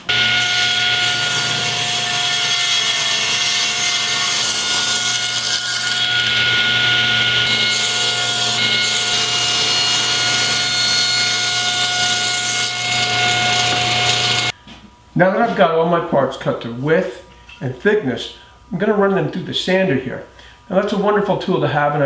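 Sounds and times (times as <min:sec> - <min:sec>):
table saw ripping wood: 0:00.0 - 0:14.5
saw blade and motor whine: 0:00.0 - 0:14.6.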